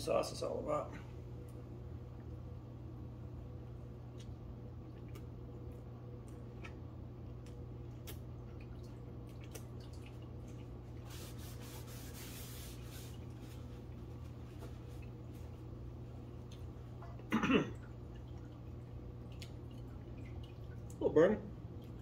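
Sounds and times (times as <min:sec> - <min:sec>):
low steady hum: 0:00.0 - 0:22.0
wet mouth clicks chewing: 0:04.1 - 0:10.8.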